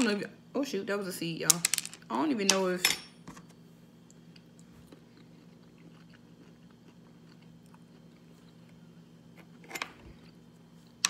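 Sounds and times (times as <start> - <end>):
quiet chewing: 4.1 - 8.8.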